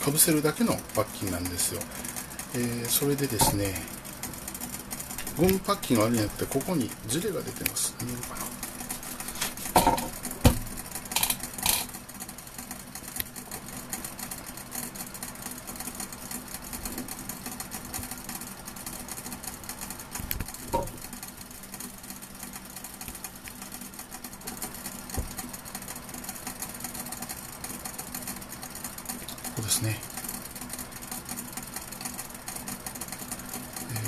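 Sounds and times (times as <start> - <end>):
steam distiller rattling: 0.0 - 33.9.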